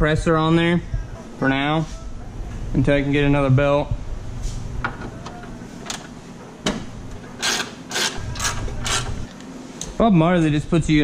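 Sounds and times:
wrench ratcheting: 0:07.4 - 0:09.1.

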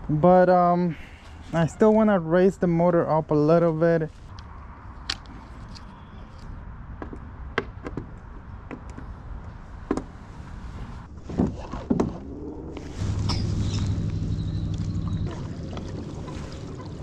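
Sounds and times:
steady low hum: 0:09.1 - 0:17.0.

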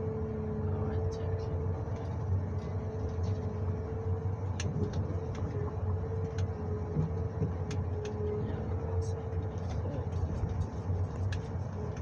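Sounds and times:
engine hum with whine: 0:00.0 - 0:12.0.

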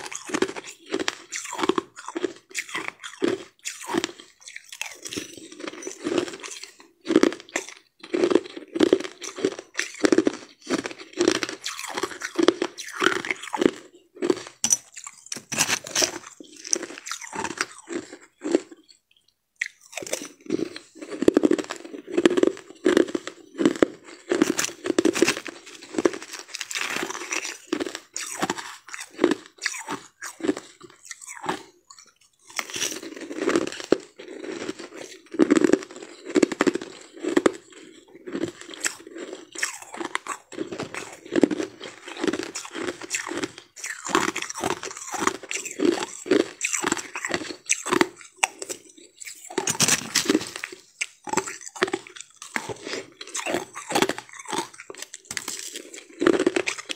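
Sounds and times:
chewing crushed ice: 0:00.0 - 0:56.9.

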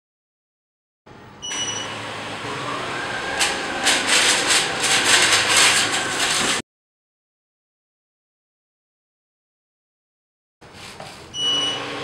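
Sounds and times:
robot vacuum whirring: 0:01.9 - 0:06.6
dry beans rattling: 0:03.6 - 0:06.6.

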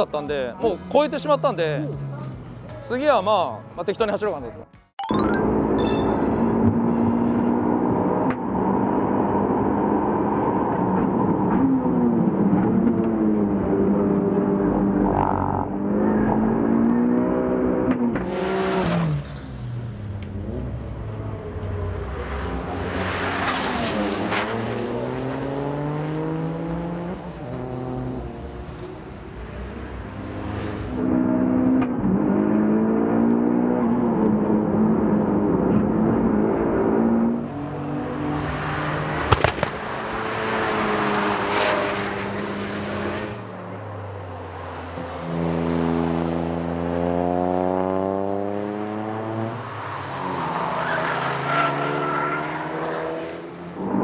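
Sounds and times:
car rushing past: 0:14.9 - 0:34.3, 0:36.2 - 0:54.0
sharp pop: 0:39.3 - 0:39.9
car engine revving: 0:44.7 - 0:54.0.

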